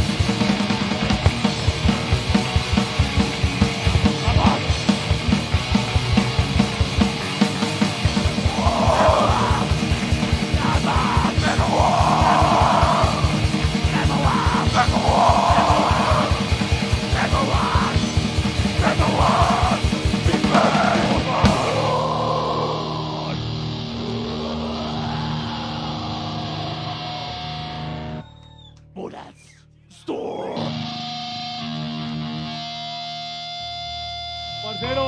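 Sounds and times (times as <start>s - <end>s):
heavy metal band playing: 0.0s - 28.2s, 30.1s - 35.0s
shouted vocals: 4.2s - 4.8s, 8.4s - 27.3s.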